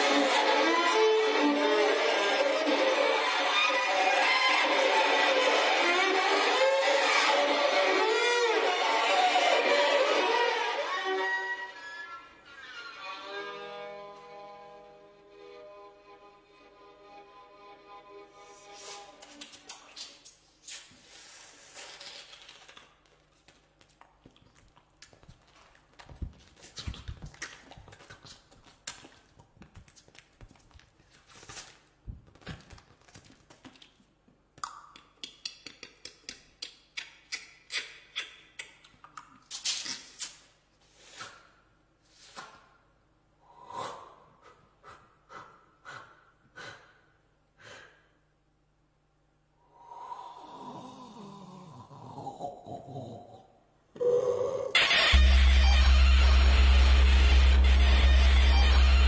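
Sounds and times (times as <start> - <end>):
mouth clicks: 34.6 - 40.4
breathy gasps and snorts: 49.7 - 54.7
voiced tone sliding downward: 54.0 - 59.0.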